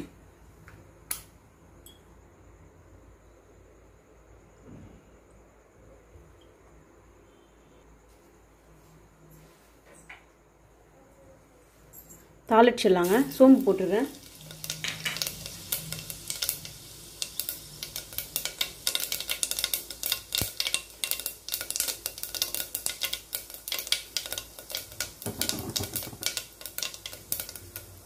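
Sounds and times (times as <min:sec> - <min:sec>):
seeds sizzling and popping in oil: 0:13.0 - 0:28.0.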